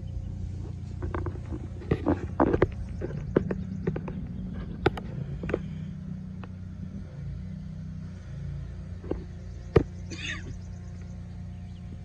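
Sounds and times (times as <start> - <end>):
diesel engine idling: 0.0 - 12.0.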